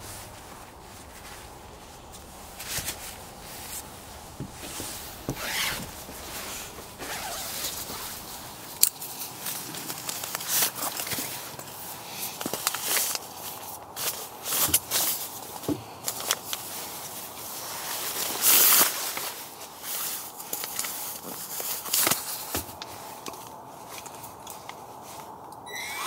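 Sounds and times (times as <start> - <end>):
camping gear rustling and clicking: 0.0 - 26.0.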